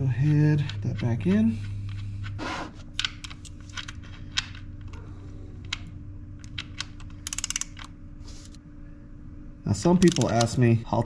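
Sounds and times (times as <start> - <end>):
ratchet wrench clicking: 6.7 - 7.9, 10.0 - 10.5.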